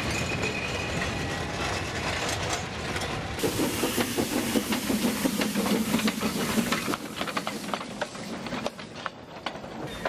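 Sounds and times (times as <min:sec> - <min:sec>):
steam locomotive hissing and chuffing: 0:03.4 - 0:10.0.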